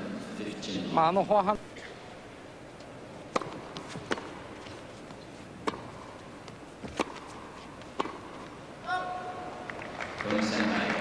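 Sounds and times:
tennis ball bouncing and hit: 0:03.2 - 0:08.6.

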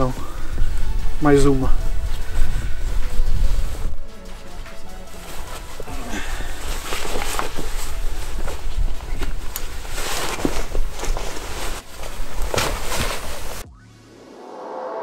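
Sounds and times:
backpack swung onto shoulders: 0:05.1 - 0:13.6.

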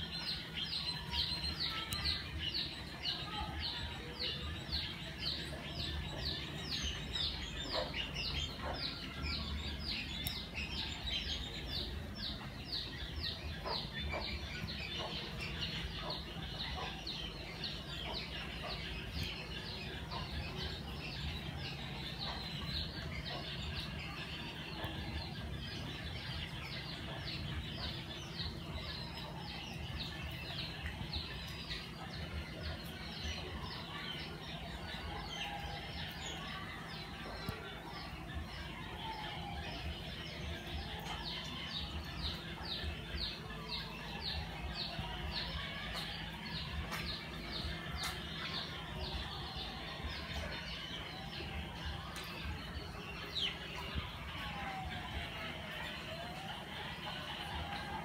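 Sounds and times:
birds chirping: 0:00.0 - 0:58.0.

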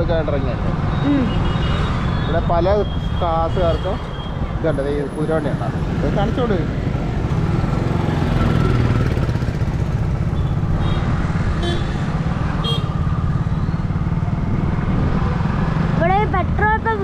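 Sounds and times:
motorcycle engine running: 0:06.5 - 0:17.0.

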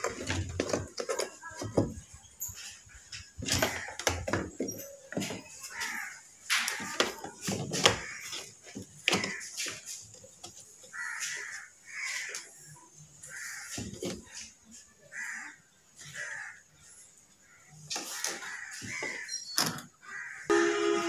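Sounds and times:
crow cawing: 0:05.7 - 0:07.0, 0:07.9 - 0:08.4, 0:09.1 - 0:09.6, 0:10.9 - 0:12.5, 0:13.3 - 0:13.8, 0:15.1 - 0:16.6, 0:17.4 - 0:19.4, 0:20.0 - 0:20.5.

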